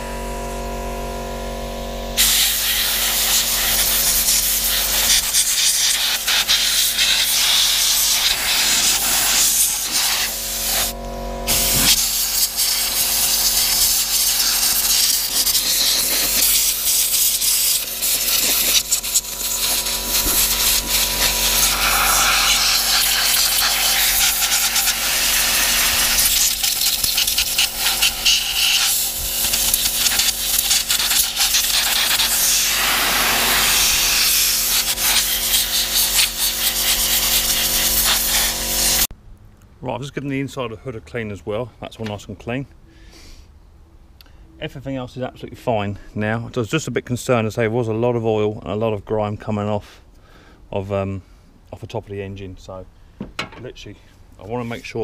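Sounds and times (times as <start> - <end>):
air blow gun hissing: 2.2 - 39.1.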